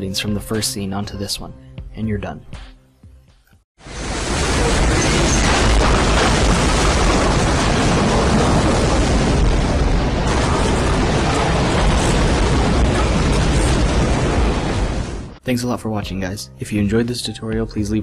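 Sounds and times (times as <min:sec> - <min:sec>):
storm wind with deep rumble: 0:03.8 - 0:15.4.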